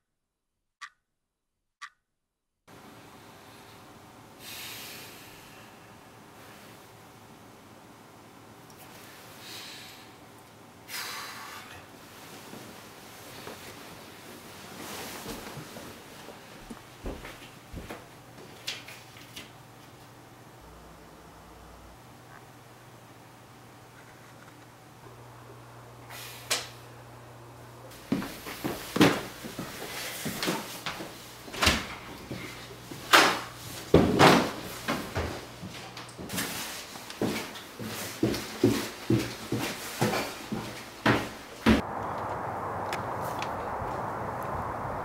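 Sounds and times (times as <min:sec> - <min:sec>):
bedding rustling: 0:12.2 - 0:16.6
low steady hum: 0:20.0 - 0:28.7, 0:41.7 - 0:45.0.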